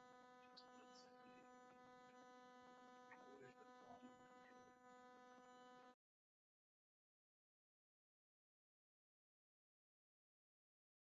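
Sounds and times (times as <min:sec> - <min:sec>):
faint electrical hum: 0:00.0 - 0:06.0.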